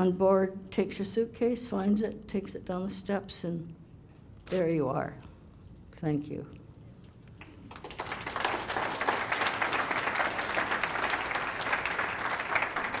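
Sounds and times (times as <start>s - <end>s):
audience applauding: 7.7s - 13.0s.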